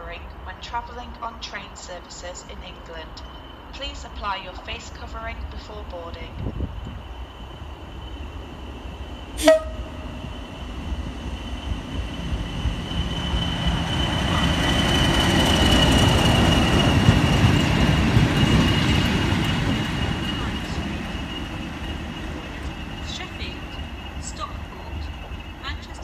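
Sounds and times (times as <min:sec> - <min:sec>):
diesel locomotive engine: 0:00.0 - 0:26.0
train wheels on rails: 0:00.3 - 0:26.0
train horn toot: 0:09.4 - 0:10.3.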